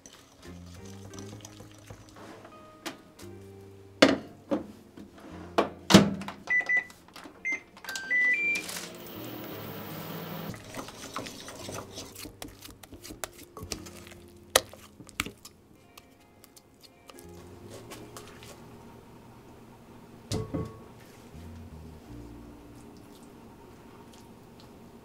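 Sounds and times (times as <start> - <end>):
microwave oven humming: 8.0 - 10.5.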